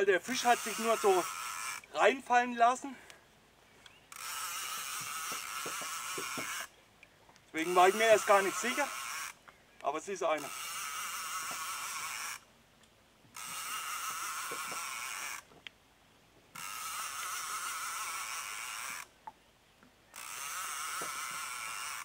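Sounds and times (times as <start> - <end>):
fishing reel buzzing: 0.0 - 2.3, 4.0 - 6.7, 7.5 - 9.4, 10.3 - 12.5, 13.3 - 15.5, 16.5 - 19.2, 20.1 - 22.0.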